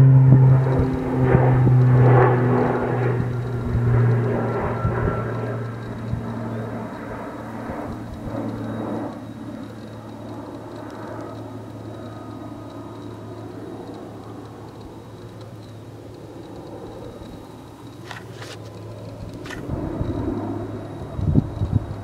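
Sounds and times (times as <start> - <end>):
propeller airplane droning overhead: 0.0 - 22.0.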